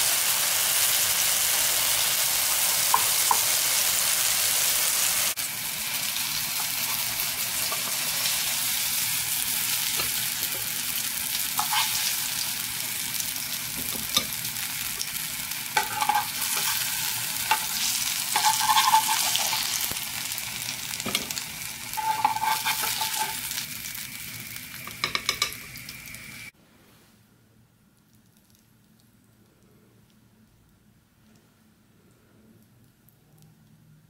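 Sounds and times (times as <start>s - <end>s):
oil sizzling in a pan: 0.0s - 26.5s
metal spatula clinking: 17.5s - 19.9s, 22.0s - 23.6s.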